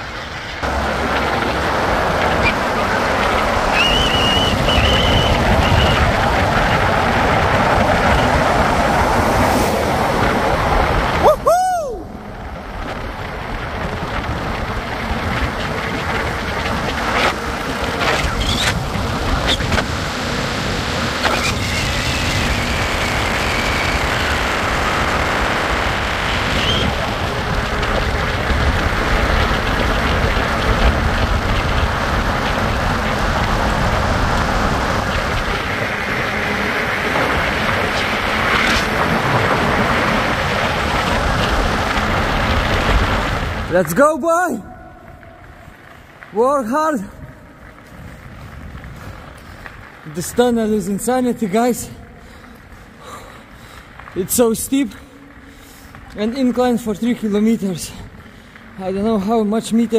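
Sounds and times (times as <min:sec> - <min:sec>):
wind on microphone: 0:00.0 - 0:43.8, 0:47.0 - 0:50.5
tyre noise: 0:00.0 - 0:59.2.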